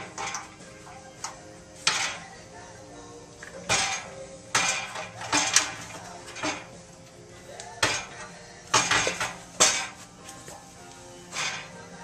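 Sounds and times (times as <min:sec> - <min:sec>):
sheet metal clanks and scrapes: 0:00.0 - 0:02.4, 0:03.6 - 0:06.8, 0:07.8 - 0:10.1, 0:11.3 - 0:11.9.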